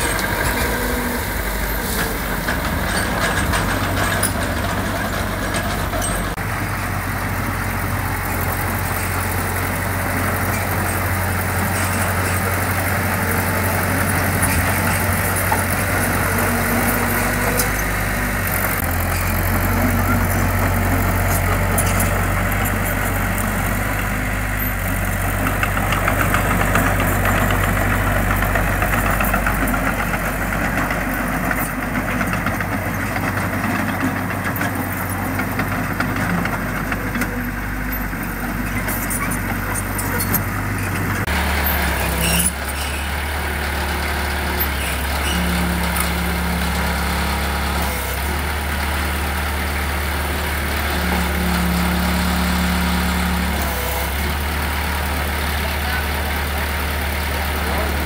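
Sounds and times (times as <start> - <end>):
diesel engine droning: 0.0 - 58.0.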